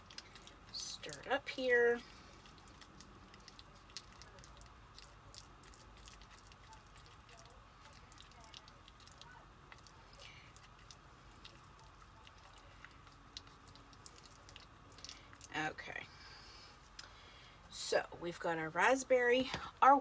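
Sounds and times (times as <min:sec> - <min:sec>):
stick stirring thick paste: 0:00.0 - 0:15.5.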